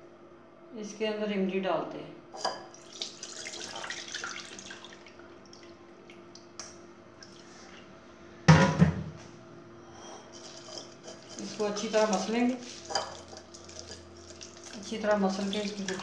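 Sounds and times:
wet tamarind squelching and dripping: 0:12.6 - 0:16.0.

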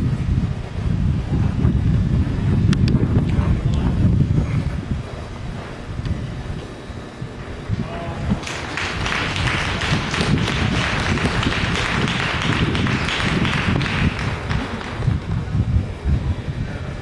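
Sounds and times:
wind rumble on microphone: 0:00.0 - 0:17.0
crowd clapping: 0:08.4 - 0:15.5.

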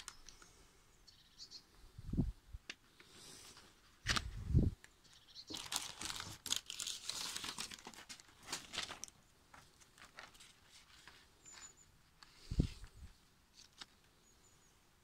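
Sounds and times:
stiff sheets crinkling: 0:05.5 - 0:14.2.

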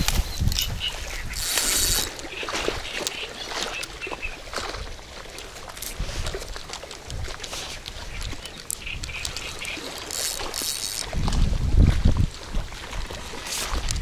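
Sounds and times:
small clicks: 0:00.0 - 0:02.2, 0:07.8 - 0:11.2
wind gusts on microphone: 0:00.0 - 0:03.0, 0:11.0 - 0:14.0
water splashing and sloshing: 0:00.0 - 0:14.0.

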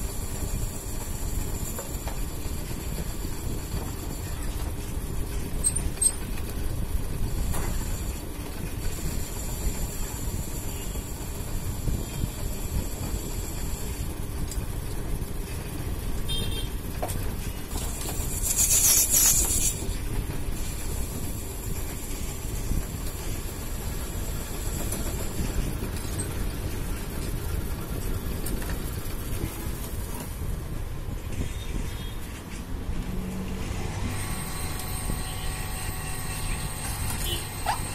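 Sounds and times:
metal lathe running: 0:00.0 - 0:16.0, 0:17.6 - 0:30.2, 0:33.9 - 0:37.9.

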